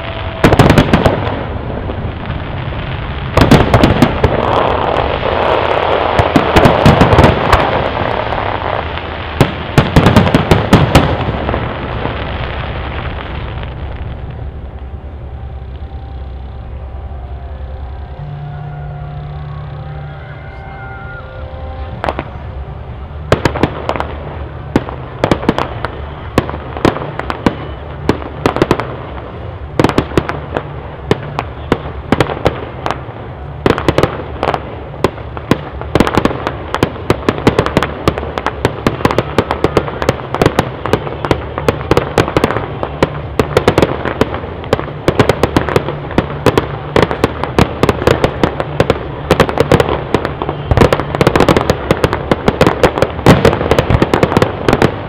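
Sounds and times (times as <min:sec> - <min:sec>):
low rumble: 0:00.0 - 0:39.0
fireworks bangs and crackles: 0:00.0 - 0:55.0.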